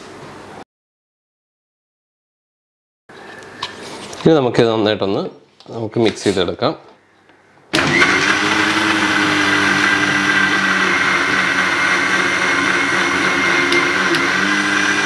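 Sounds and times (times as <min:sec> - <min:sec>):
mixer grinder running: 0:07.7 - 0:15.0.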